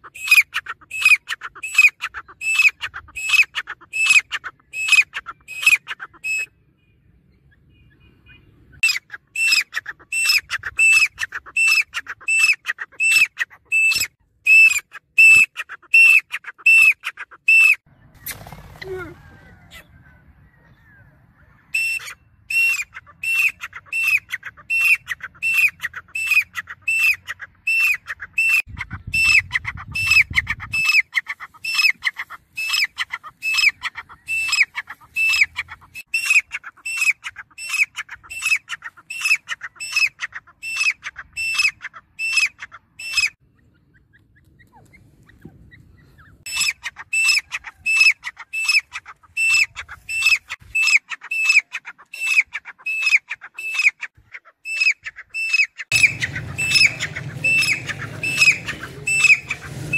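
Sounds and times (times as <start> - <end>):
francolin calling: 21.8 - 44.8, 45.7 - 59.9.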